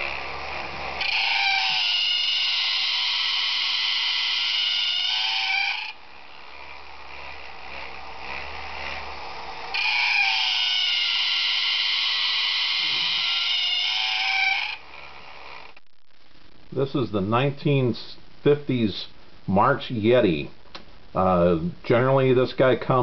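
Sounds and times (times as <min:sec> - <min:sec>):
toy electric motor humming: 0:00.0 - 0:15.8
toy's loud pitched cry: 0:01.0 - 0:06.0, 0:09.7 - 0:14.8.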